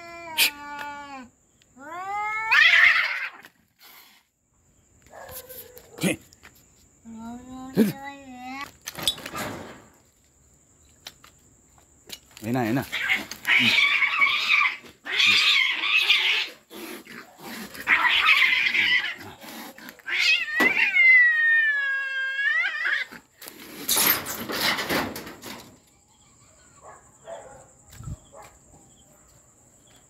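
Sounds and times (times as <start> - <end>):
cats fighting and yowling: 0.0 - 4.0, 12.8 - 27.0.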